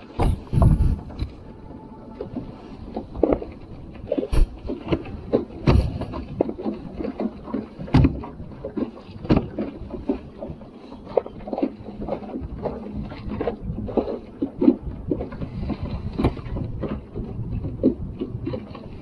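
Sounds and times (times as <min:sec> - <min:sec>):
gear knocking on a kayak: 0:04.3 - 0:10.6, 0:11.2 - 0:19.0.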